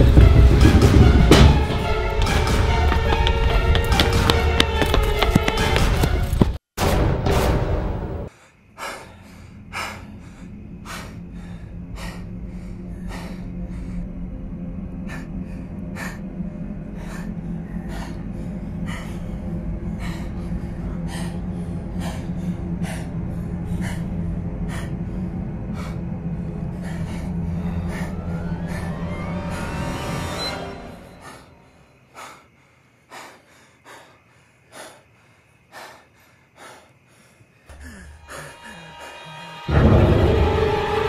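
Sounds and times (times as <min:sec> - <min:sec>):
person breathing hard: 0:08.3 - 0:39.8
low steady drone: 0:08.9 - 0:32.0, 0:37.7 - 0:41.0.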